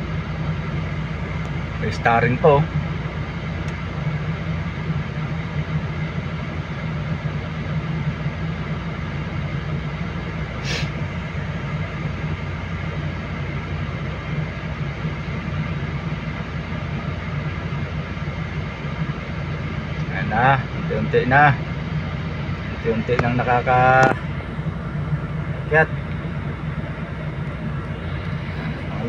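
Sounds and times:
diesel engine humming: 0:00.0 - 0:29.0
brief hiss: 0:10.6 - 0:11.0.

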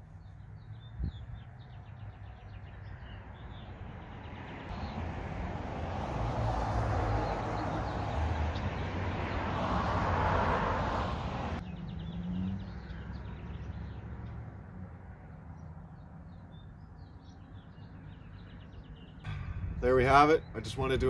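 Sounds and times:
birds chirping: 0:00.0 - 0:05.2, 0:06.4 - 0:10.0, 0:11.6 - 0:21.0
car passing: 0:01.5 - 0:21.0.

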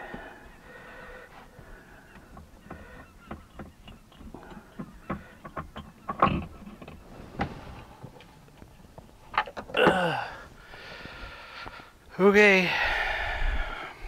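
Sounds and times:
hand working oil filter loose: 0:01.5 - 0:08.3.

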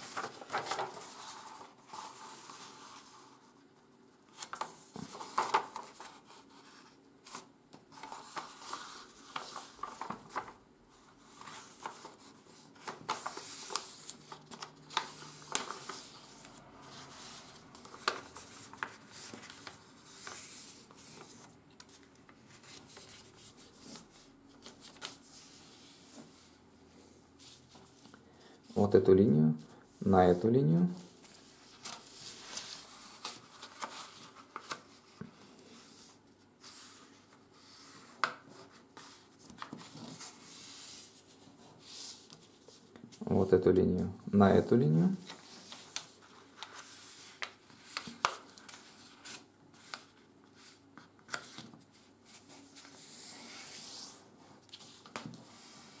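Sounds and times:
paper crackling: 0:00.0 - 0:03.2, 0:04.3 - 0:06.3, 0:07.3 - 0:10.6, 0:11.3 - 0:25.2, 0:31.3 - 0:35.2, 0:45.2 - 0:56.0
paper rustling and rubbing: 0:00.0 - 0:03.6, 0:04.3 - 0:26.6, 0:31.0 - 0:43.2, 0:45.2 - 0:56.0.

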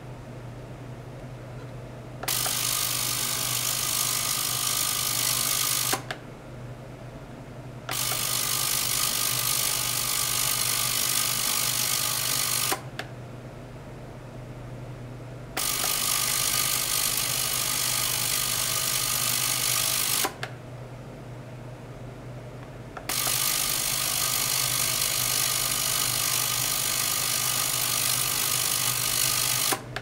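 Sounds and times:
low steady hum: 0:00.0 - 0:02.3
ultrasonic cleaner buzzing: 0:02.2 - 0:06.1.

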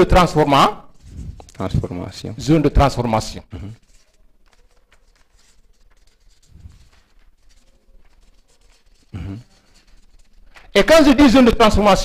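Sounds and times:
marker scratching on whiteboard: 0:03.6 - 0:11.2.

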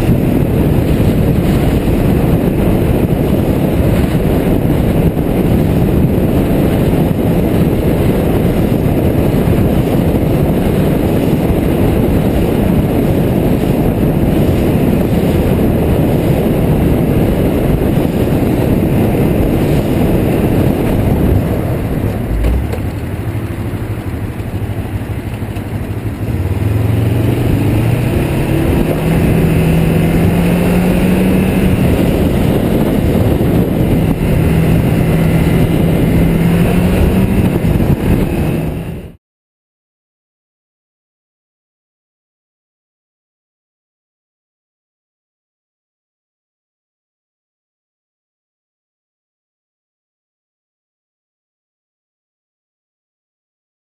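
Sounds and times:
motorcycle engine accelerating: 0:00.0 - 0:39.2
wind rushing over microphone: 0:00.0 - 0:39.2.

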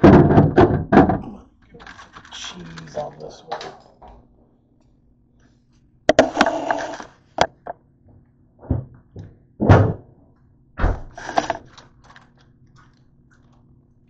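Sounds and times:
knocks and thuds on counter: 0:00.0 - 0:01.3.

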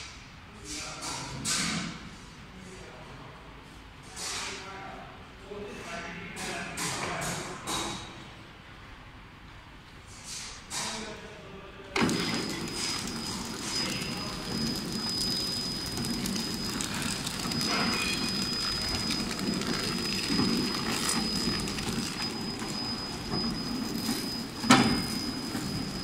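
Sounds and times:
high machine whine: 0:12.0 - 0:26.0
packing machine rumble and clatter: 0:12.0 - 0:26.0.

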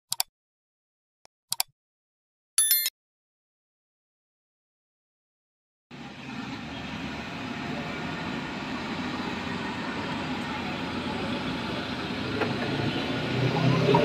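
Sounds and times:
road traffic rumble: 0:05.9 - 0:14.0.

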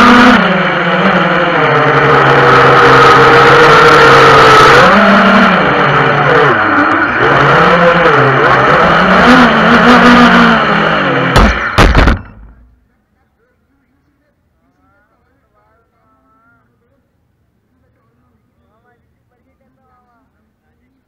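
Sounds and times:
drone motors whining: 0:00.0 - 0:12.6
drone knocking onto pavement: 0:11.3 - 0:12.7.

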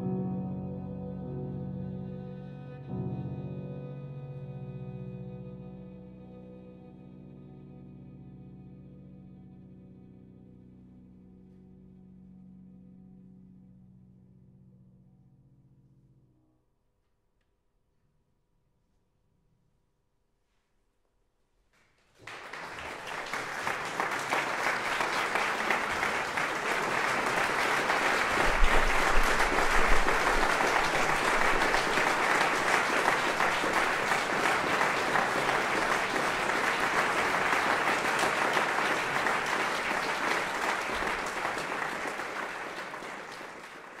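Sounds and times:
audience applauding: 0:22.2 - 0:44.0.

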